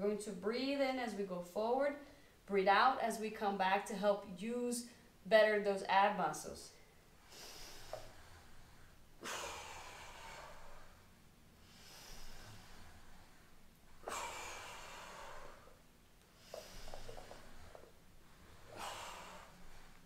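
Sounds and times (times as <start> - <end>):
woman breathing: 2.0 - 2.5, 6.8 - 20.0.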